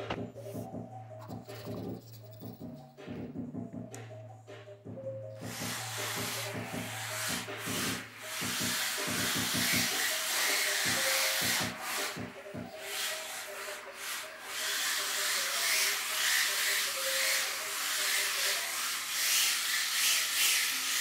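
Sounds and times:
toy truck tyres scrubbing floor: 5.4 - 21.0.

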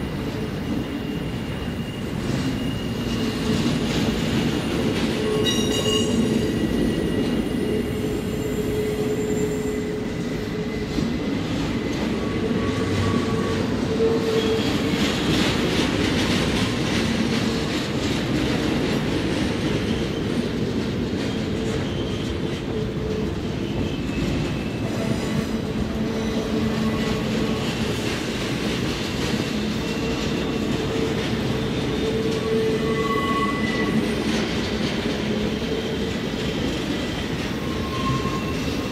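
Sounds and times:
train wheels rumbling on rails: 0.0 - 38.9
high wheel squeals: 0.8 - 3.9, 4.5 - 15.0, 21.3 - 27.9, 29.6 - 34.3, 35.5 - 38.9.

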